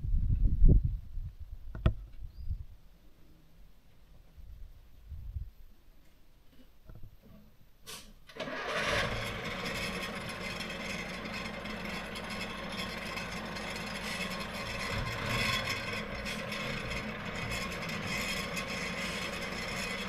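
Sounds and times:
diesel bus engine starting: 7.9 - 20.0.

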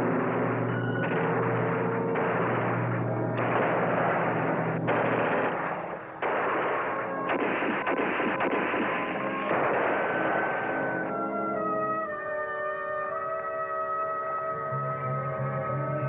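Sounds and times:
automatic gunfire: 0.0 - 11.7.

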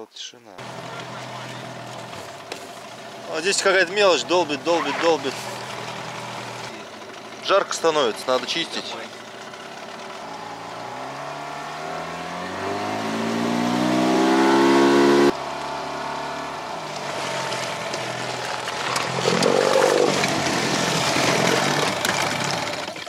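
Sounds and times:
outboard motor accelerating: 0.6 - 23.0.

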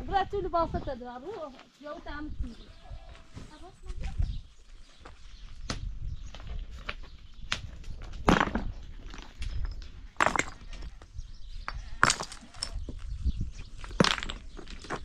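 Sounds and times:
rocks knocking together: 5.6 - 11.0, 11.6 - 13.1, 13.8 - 15.0.

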